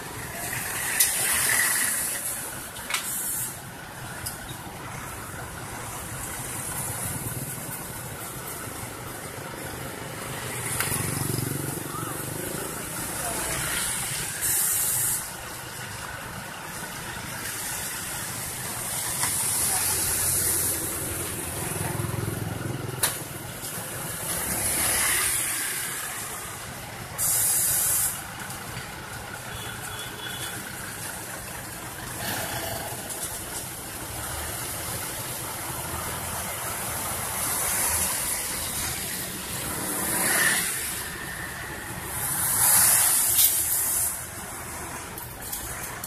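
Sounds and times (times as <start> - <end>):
road roller diesel engines: 0.0 - 46.0
bursts of hissing: 0.3 - 3.7, 13.6 - 15.6, 23.9 - 28.5
motorcycle passing: 10.3 - 12.2.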